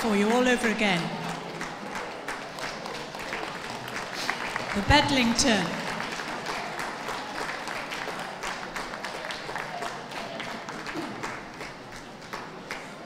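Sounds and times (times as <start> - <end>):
audience clapping: 0.0 - 13.0.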